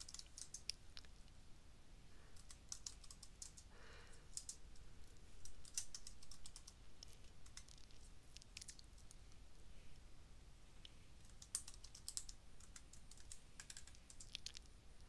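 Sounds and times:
keyboard typing: 0.0s - 0.8s, 2.4s - 3.7s, 4.3s - 4.6s, 5.4s - 9.1s, 11.2s - 14.7s.

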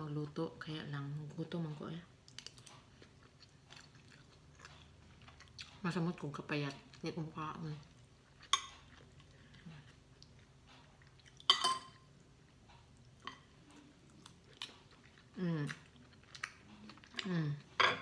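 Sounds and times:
chewing: 2.2s - 17.8s
cutlery clinking on a plate: 11.5s - 12.0s, 17.8s - 18.0s.

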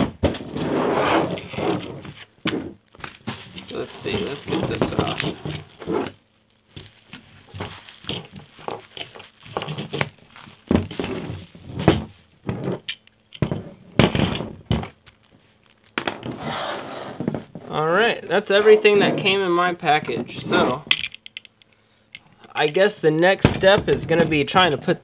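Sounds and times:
bubble wrap crinkling: 1.3s - 13.4s, 14.6s - 17.6s.

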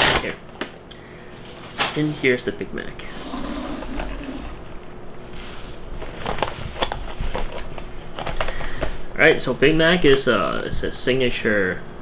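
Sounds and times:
paper packaging rustling: 3.4s - 9.0s.

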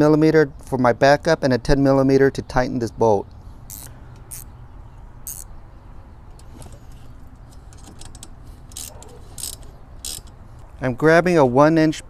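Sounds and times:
wrench metallic clicks and jingles: 7.4s - 10.4s.

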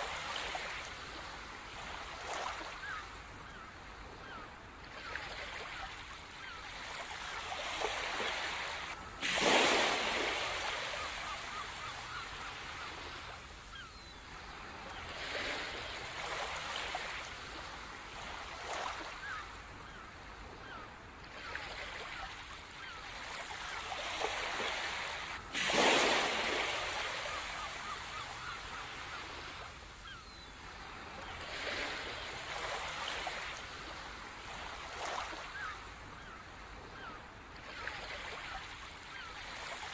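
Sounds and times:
waves breaking: 0.0s - 39.9s
ocean surf washing onto beach: 9.2s - 12.2s.

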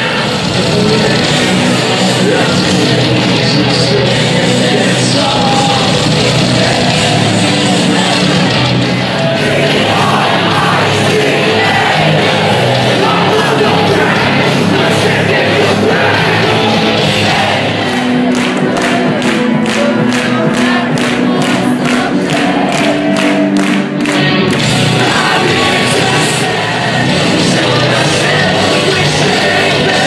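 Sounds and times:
crowd noise: 0.0s - 30.0s
heavy metal band playing live: 0.0s - 30.0s
person singing: 0.0s - 30.0s
steady drum beat: 0.0s - 30.0s.

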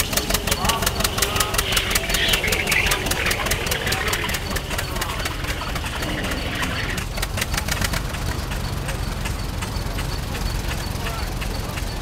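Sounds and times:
faint crowd murmur: 0.0s - 7.1s
tractor engine popping: 0.0s - 12.0s.

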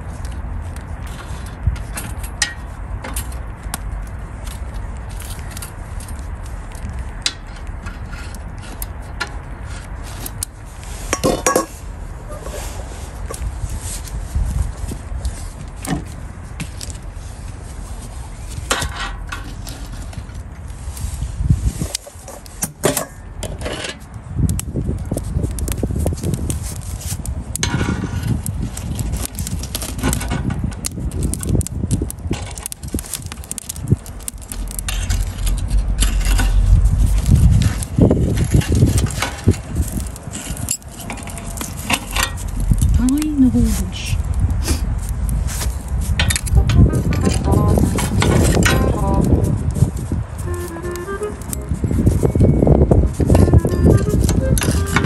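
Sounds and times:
steady low rumble: 0.0s - 23.4s, 24.1s - 55.0s
low rumble: 30.4s - 55.0s
metal fork scraping steel basket: 47.2s - 55.0s.

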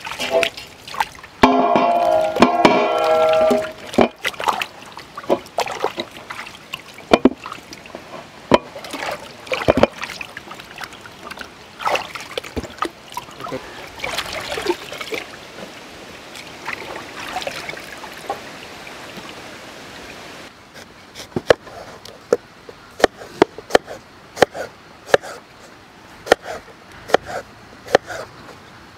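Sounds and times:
water sloshing and splashing: 0.0s - 20.5s.

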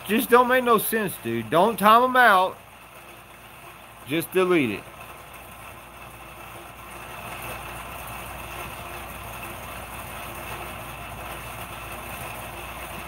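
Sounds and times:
steady mechanical hum with hiss: 0.0s - 13.0s.

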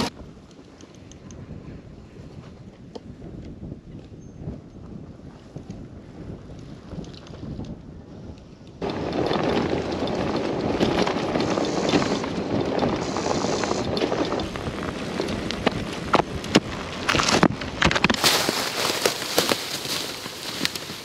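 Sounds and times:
bike tyres rolling on dirt: 8.5s - 21.0s
bike knocks and rattles: 8.8s - 21.0s
crunching through dry leaves: 14.8s - 21.0s.

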